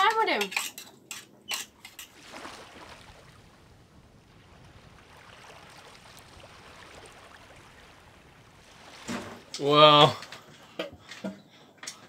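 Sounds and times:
wind: 0.0s - 12.0s
water washing against hull: 1.7s - 10.8s.

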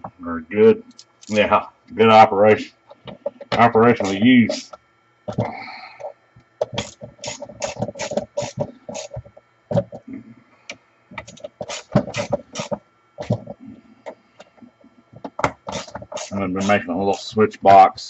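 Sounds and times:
screwdriver working at housing: 3.1s - 4.8s, 6.6s - 9.9s, 11.2s - 13.6s, 15.3s - 17.3s.

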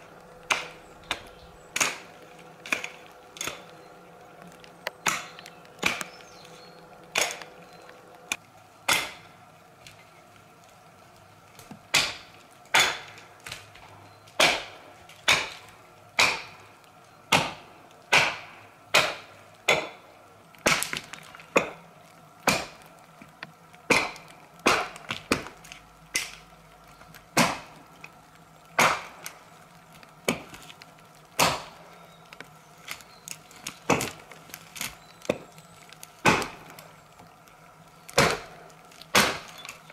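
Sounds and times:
hatchet chopping log: 0.4s - 3.7s, 4.9s - 6.2s, 7.1s - 7.6s, 8.9s - 9.2s, 11.9s - 13.2s, 14.4s - 15.6s, 16.2s - 16.6s, 17.3s - 20.0s, 20.6s - 21.8s, 22.4s - 22.8s, 23.9s - 26.4s, 27.3s - 27.8s, 28.8s - 29.2s, 31.4s - 31.8s, 33.9s - 34.2s, 36.2s - 36.6s, 38.1s - 38.5s, 39.1s - 39.7s.

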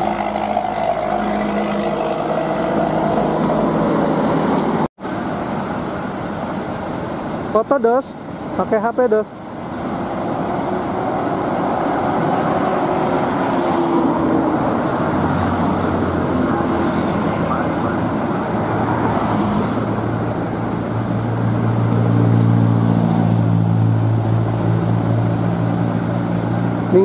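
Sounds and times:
bus diesel engine humming: 0.0s - 27.0s
outdoor noise: 0.0s - 27.0s.

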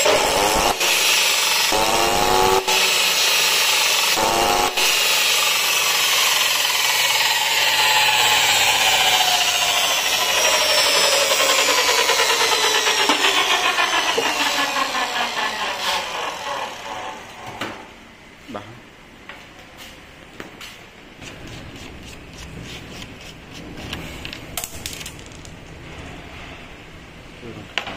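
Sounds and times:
cut-off saw motor whining: 0.0s - 17.6s.

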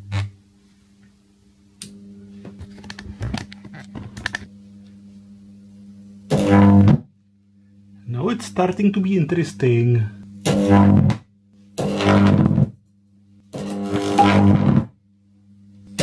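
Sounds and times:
buzzing high-voltage arc: 0.0s - 0.4s, 6.2s - 7.1s, 9.7s - 12.8s, 13.5s - 15.0s
electrical crackles and clicks: 2.6s - 4.5s.

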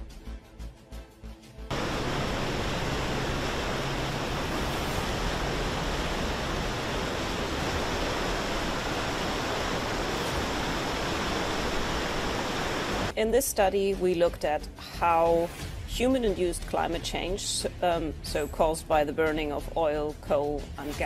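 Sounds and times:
floodwater rushing: 1.7s - 13.1s.

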